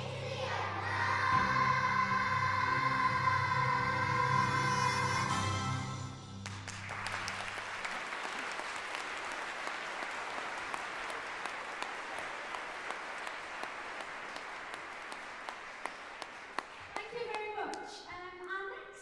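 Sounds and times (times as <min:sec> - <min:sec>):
choir singing: 0:00.0 - 0:06.2
audience applauding: 0:06.4 - 0:17.8.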